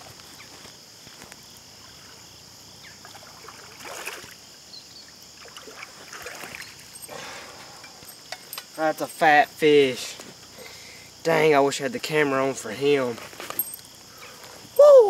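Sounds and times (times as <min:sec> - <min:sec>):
fish splashing in water: 0:03.1 - 0:04.4, 0:05.4 - 0:06.9
steady high hiss: 0:04.4 - 0:15.0.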